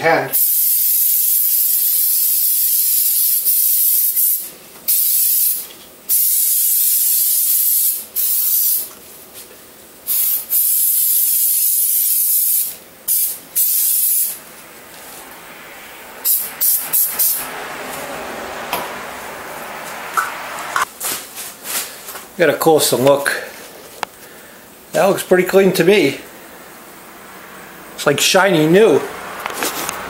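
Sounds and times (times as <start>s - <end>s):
aerosol spraying: 0.3s - 9.0s, 10.1s - 14.4s.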